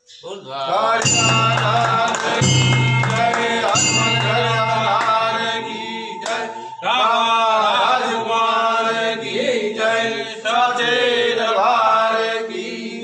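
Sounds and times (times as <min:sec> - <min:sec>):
devotional singing: 0:00.2 - 0:13.0
instrumental accompaniment with drone: 0:01.0 - 0:07.6.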